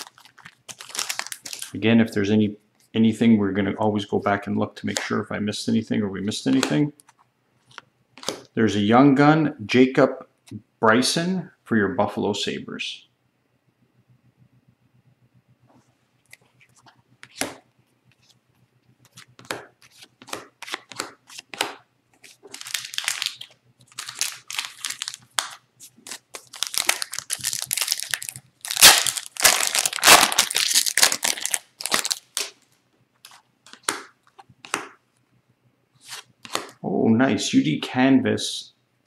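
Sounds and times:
cards rustling and clicking: 0.0 - 1.8, 6.4 - 8.5, 16.2 - 17.6, 19.0 - 32.6, 33.2 - 34.9, 36.0 - 36.8
foil pack tearing and crinkling: 0.0 - 1.8, 22.4 - 32.6.

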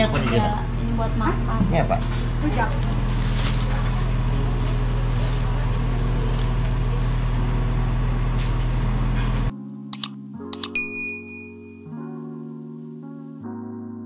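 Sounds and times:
soft music: 9.6 - 14.0
mouse clicks: 10.0 - 11.5
bell ding: 10.0 - 11.8.

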